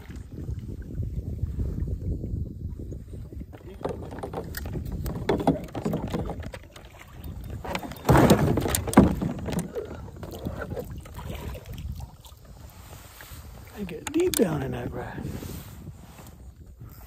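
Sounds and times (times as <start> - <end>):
knocks against kayak hull: 3.6 - 10.9.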